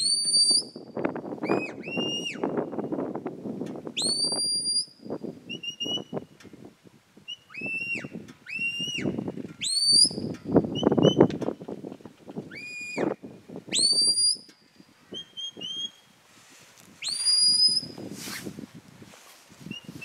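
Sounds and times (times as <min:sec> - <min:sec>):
shrill shepherd's whistle: 0:00.0 - 0:02.6, 0:04.0 - 0:06.3, 0:07.3 - 0:11.3, 0:12.5 - 0:14.5, 0:15.1 - 0:16.1, 0:17.0 - 0:18.4, 0:19.7 - 0:20.0.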